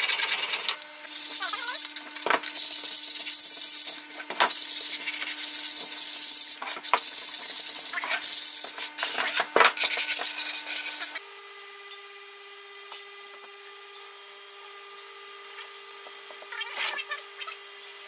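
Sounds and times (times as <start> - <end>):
sandpaper scratching on wood: 0.0 - 11.8.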